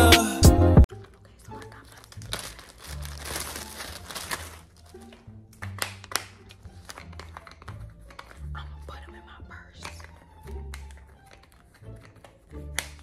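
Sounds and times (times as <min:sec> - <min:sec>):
plastic bag crinkling: 0:00.9 - 0:08.6.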